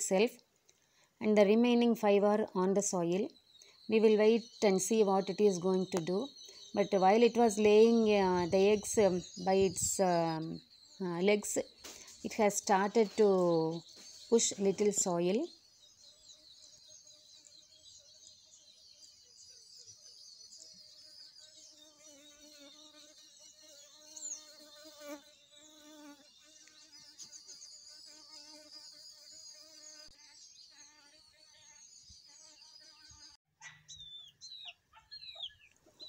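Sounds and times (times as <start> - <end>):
insect buzzing: 15.6 - 33.4
high chirping: 31.7 - 36.0.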